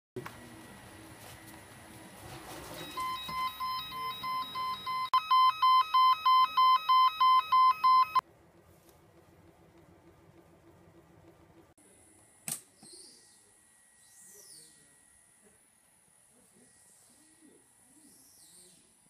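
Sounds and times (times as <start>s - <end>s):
loud alarm beeps: 2.8s - 8.2s.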